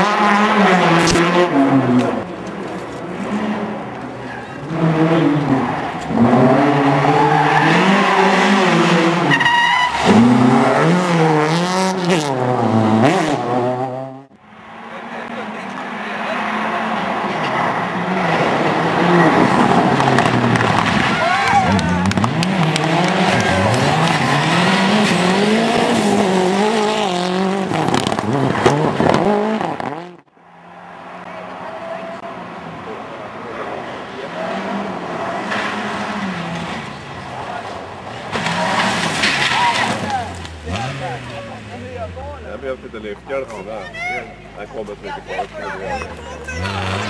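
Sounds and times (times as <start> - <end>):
car engine revving hard: 0.0 - 2.3, 4.6 - 30.3, 34.1 - 43.2, 45.8 - 47.0
tire squeal: 4.2 - 11.2, 14.6 - 26.8, 34.4 - 41.5
tyres sliding on gravel: 35.2 - 42.4.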